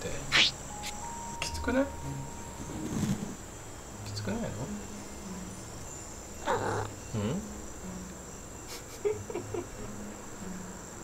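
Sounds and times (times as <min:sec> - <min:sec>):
high thin whine: 0:00.2 - 0:08.9
cat grumbling: 0:06.4 - 0:06.9.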